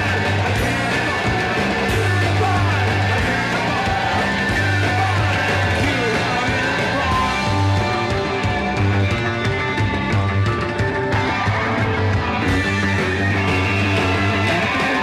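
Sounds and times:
man singing into a microphone: 0:00.0 - 0:07.6, 0:14.2 - 0:15.0
bass guitar: 0:00.0 - 0:15.0
drums: 0:00.0 - 0:15.0
electric guitars: 0:00.0 - 0:15.0.

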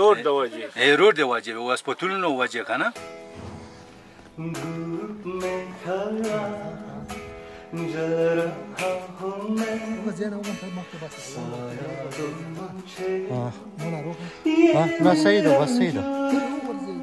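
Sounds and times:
plucked acoustic guitar: 0:02.9 - 0:17.0
man singing: 0:04.3 - 0:17.0.

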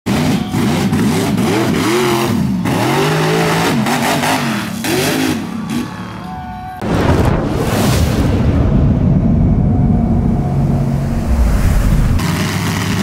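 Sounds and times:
truck engine revving: 0:00.1 - 0:06.3, 0:09.0 - 0:13.0.

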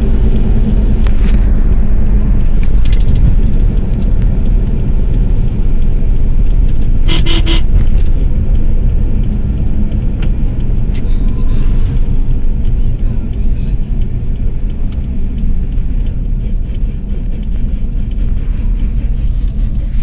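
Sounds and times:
car road noise rumble: 0:00.0 - 0:20.0
car horn toot: 0:07.0 - 0:07.8.

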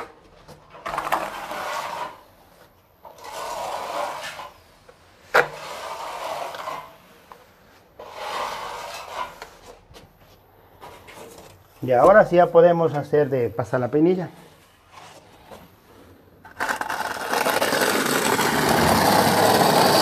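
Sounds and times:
trowel scraping adhesive on wall: 0:00.7 - 0:02.4, 0:03.0 - 0:04.6, 0:05.3 - 0:07.4, 0:08.0 - 0:09.8, 0:16.4 - 0:20.0.

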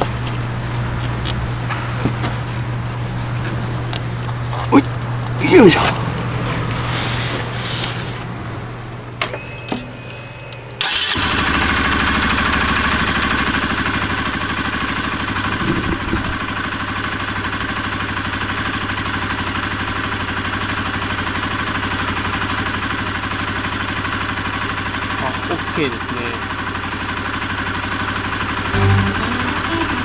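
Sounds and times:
motorcycle engine idling: 0:10.8 - 0:28.8.

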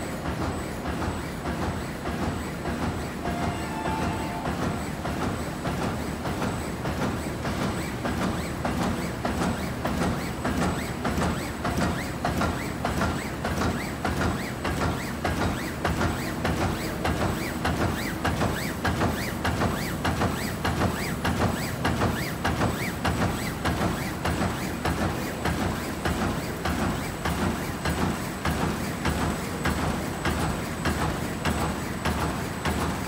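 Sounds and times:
thin steady high whine: 0:03.2 - 0:05.5.

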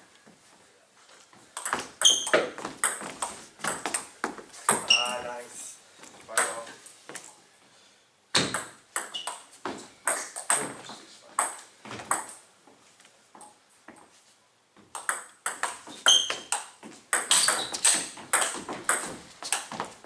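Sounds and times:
table tennis ball hits: 0:01.6 - 0:04.1, 0:06.3 - 0:06.8, 0:08.3 - 0:12.4, 0:14.8 - 0:19.9.

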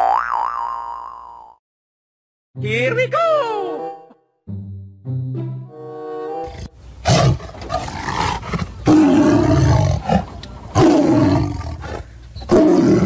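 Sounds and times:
tiger roaring: 0:06.5 - 0:13.0.

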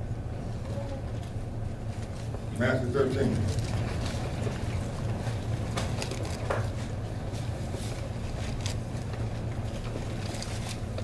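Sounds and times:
steady low hum: 0:00.0 - 0:11.0
pages turning: 0:05.7 - 0:06.8, 0:07.8 - 0:11.0.

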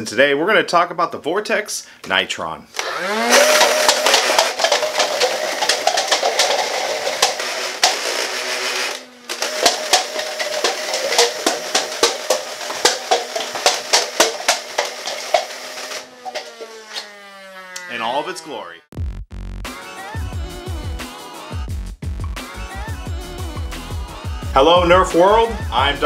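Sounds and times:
flywheel motor whining: 0:02.8 - 0:18.5
plastic cups clattering down: 0:03.2 - 0:16.8.

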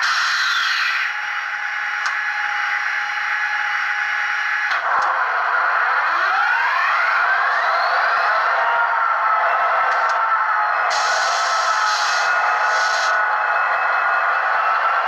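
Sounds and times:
click: 0:02.0 - 0:02.2, 0:09.9 - 0:10.2.

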